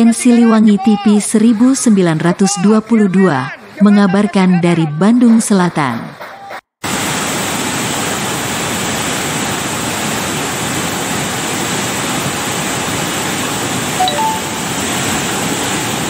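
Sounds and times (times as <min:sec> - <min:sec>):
floodwater rushing: 0:06.9 - 0:16.0.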